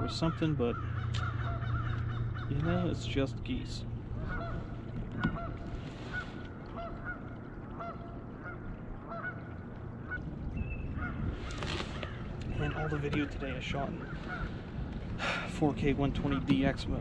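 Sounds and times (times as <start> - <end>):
geese honking: 0.0 - 3.2, 4.2 - 10.3, 10.9 - 11.4, 13.8 - 14.6
low steady rumble: 0.0 - 17.0.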